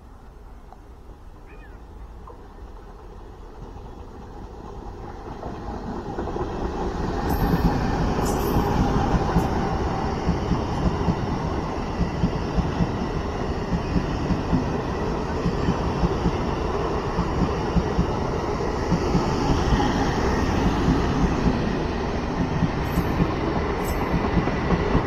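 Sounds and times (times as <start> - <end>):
train coaches rumbling past: 0.0 - 25.0.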